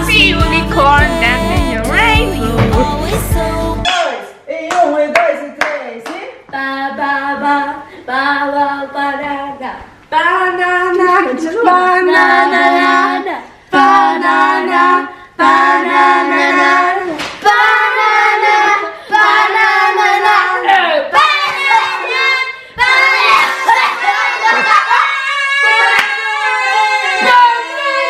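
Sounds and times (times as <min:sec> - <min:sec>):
children singing: 0:11.7 - 0:25.4.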